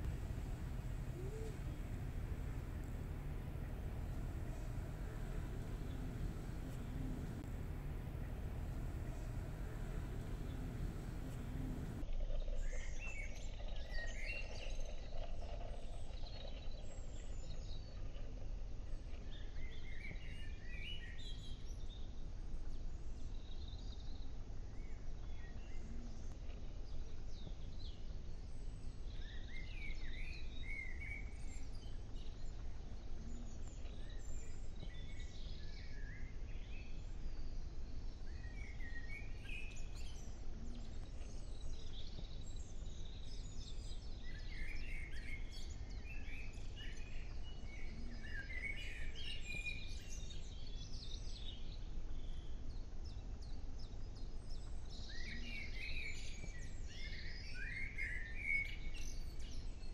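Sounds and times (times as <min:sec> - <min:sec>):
small birds chirping: 0:00.0 - 0:12.0
low outdoor background rumble: 0:00.0 - 0:12.1.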